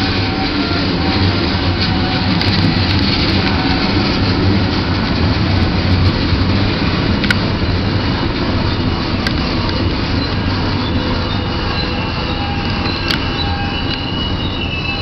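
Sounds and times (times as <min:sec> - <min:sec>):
freight train wheels rumbling on rail: 0:00.0 - 0:15.0.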